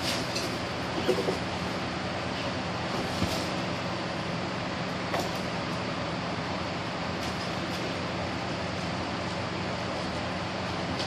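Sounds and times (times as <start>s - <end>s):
objects knocking and rustling: 0.0s - 1.5s
ceiling fan whooshing hum: 0.0s - 11.0s.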